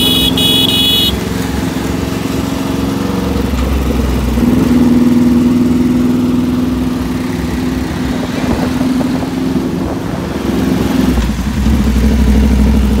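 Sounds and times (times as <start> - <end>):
motorcycle engine running: 0.0 - 10.3.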